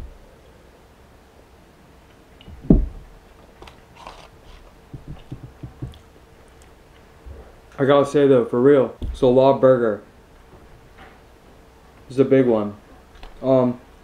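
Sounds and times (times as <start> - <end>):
loud low thump: 2.5 - 3.1.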